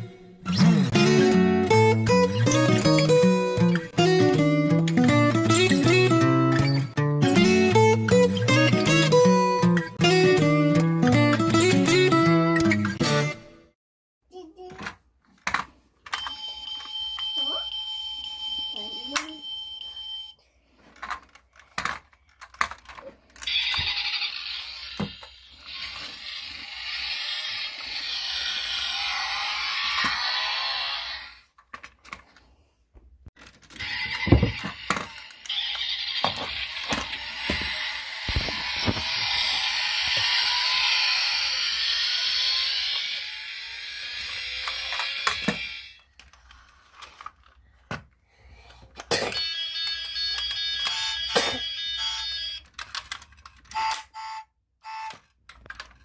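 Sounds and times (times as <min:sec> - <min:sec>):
plastic clicks and knocks of toy cars: 0:14.6 - 0:16.4, 0:20.9 - 0:24.1, 0:31.5 - 0:32.5, 0:33.4 - 0:39.1, 0:44.3 - 0:51.4, 0:52.6 - 0:54.2, 0:55.1 - 0:56.0
toy car motor whirring: 0:22.6 - 0:31.6, 0:33.7 - 0:47.6, 0:49.3 - 0:54.3.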